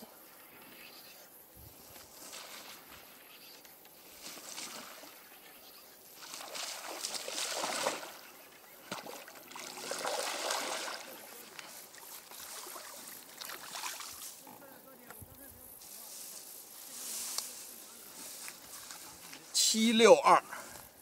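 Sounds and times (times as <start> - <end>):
fish thrashing in water: 6.2 - 8.2, 8.8 - 11.6.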